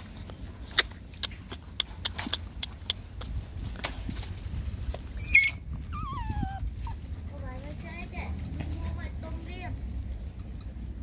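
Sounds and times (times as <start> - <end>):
puppies scuffling on dry leaves: 3.4 - 10.2
puppy squealing: 5.2 - 7.0.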